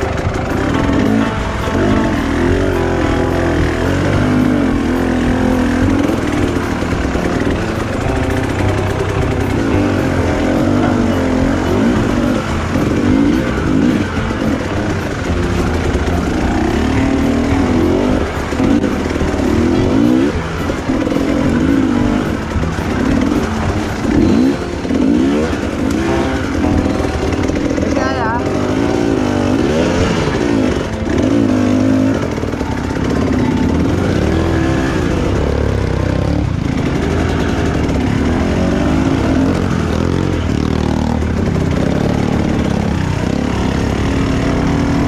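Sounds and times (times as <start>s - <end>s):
dirt bike engine revving: 0.0s - 45.0s.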